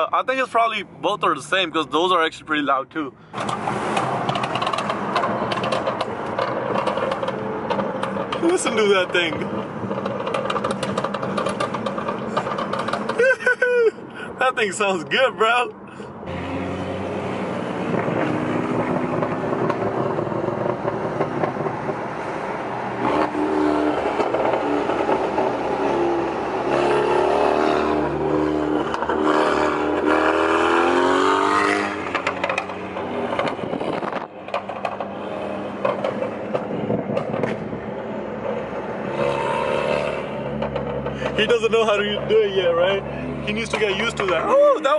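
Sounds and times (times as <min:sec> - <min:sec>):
car engine revving: 0:03.3 - 0:13.3, 0:14.7 - 0:44.9
exhaust pops and crackles: 0:03.3 - 0:13.4, 0:17.9 - 0:22.1, 0:23.0 - 0:25.7, 0:31.8 - 0:42.8, 0:43.4 - 0:44.5.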